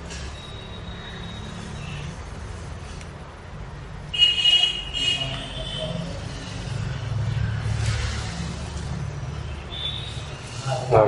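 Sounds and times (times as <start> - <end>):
road traffic rumble: 0.0 - 11.0
high-pitched car horn honks: 4.1 - 6.1.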